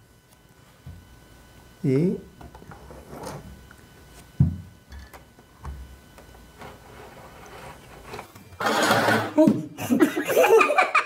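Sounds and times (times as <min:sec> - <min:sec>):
dull thumps on a table: 0:04.4 - 0:04.7.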